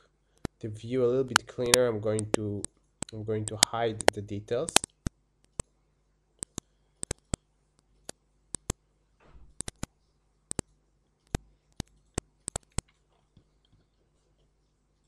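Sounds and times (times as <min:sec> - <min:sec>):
soft rustle: 0:12.8 - 0:15.0.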